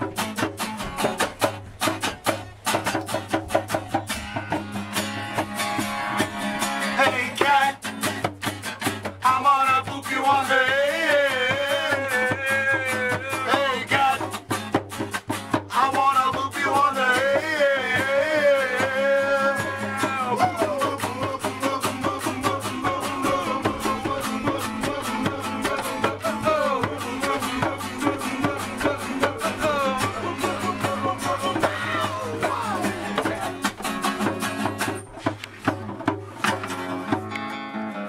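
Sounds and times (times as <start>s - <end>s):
strummed acoustic guitar: 0.0s - 38.0s
man singing: 6.8s - 8.1s, 9.2s - 14.5s, 15.7s - 34.0s.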